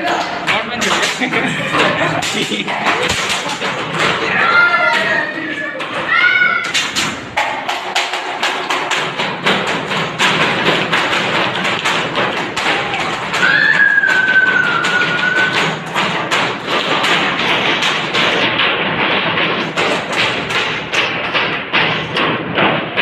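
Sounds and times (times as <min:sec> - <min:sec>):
knocking and tapping on desks: 0:00.0 - 0:23.0.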